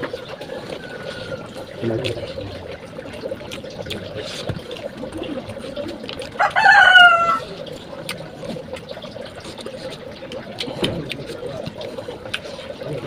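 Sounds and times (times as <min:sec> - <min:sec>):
person eating and chewing: 0:00.0 - 0:13.0
rooster crowing: 0:00.2 - 0:01.6, 0:06.4 - 0:07.5.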